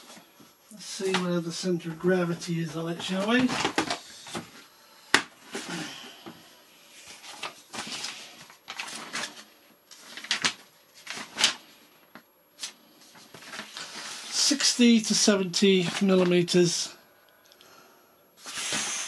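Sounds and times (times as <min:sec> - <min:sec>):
paper sheets rustling: 0:02.1 - 0:04.6, 0:06.9 - 0:16.8
plastic boxes clicking and knocking: 0:03.0 - 0:04.5.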